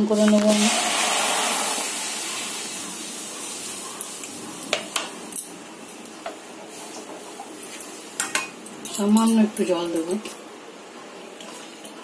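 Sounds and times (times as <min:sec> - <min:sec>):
milk sizzling in hot pan: 0:00.0 - 0:08.7.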